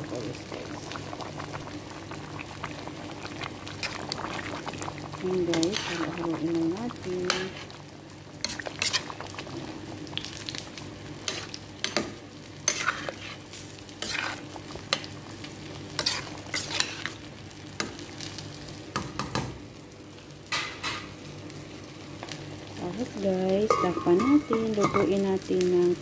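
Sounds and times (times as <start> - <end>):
metal spatula scraping a pot: 12.6 - 13.4, 14.0 - 14.4, 16.0 - 17.1.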